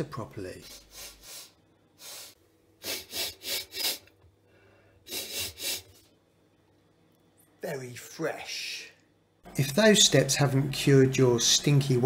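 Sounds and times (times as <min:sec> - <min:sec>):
man sniffing: 0:00.6 - 0:04.1, 0:04.7 - 0:06.1.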